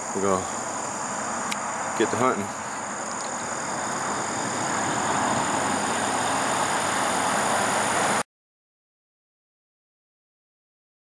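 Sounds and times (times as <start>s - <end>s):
high drone of insects: 0.0s - 8.2s
highway traffic rushing: 0.0s - 8.2s.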